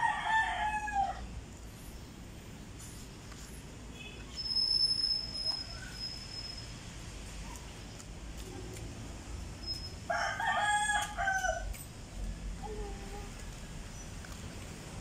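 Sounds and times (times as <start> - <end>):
rooster crowing: 0.0 - 1.3, 10.1 - 11.7.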